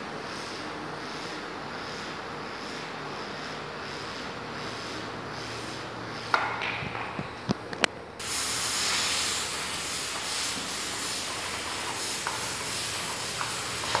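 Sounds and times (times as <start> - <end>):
steam hissing from pressure cooker: 8.2 - 14.0.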